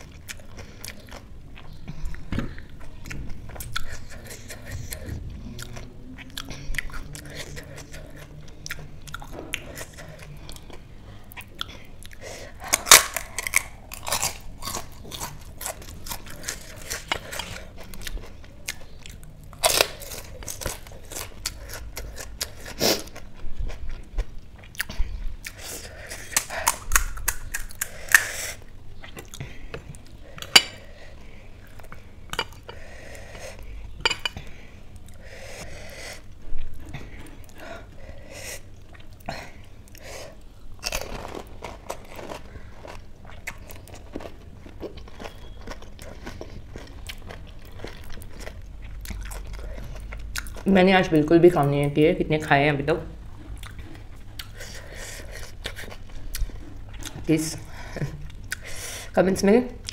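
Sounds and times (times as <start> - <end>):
crisp shells crunching: 12.6 - 15.0, 40.8 - 43.0
chewing crackles: 38.6 - 50.7, 53.3 - 57.3.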